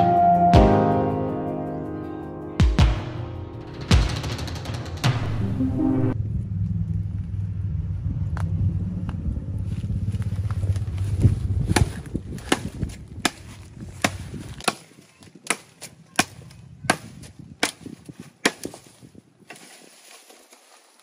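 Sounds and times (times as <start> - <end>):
low drone: 3.0 - 11.0.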